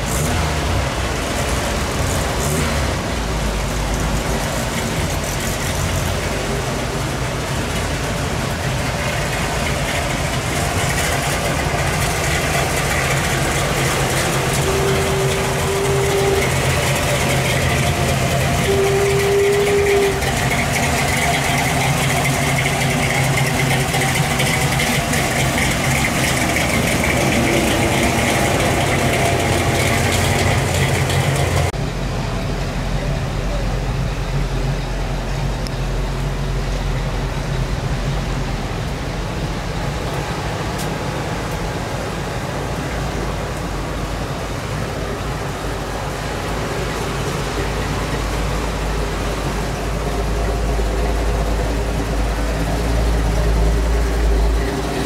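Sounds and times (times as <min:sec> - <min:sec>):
car engines rumbling: 0:00.0 - 0:55.0
short steady tones: 0:14.4 - 0:21.9.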